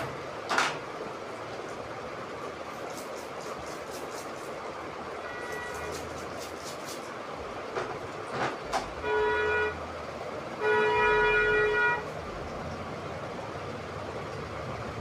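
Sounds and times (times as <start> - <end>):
steady background noise: 0.0 - 15.0
vehicle horn honking: 5.2 - 6.0, 9.0 - 9.8, 10.6 - 12.1.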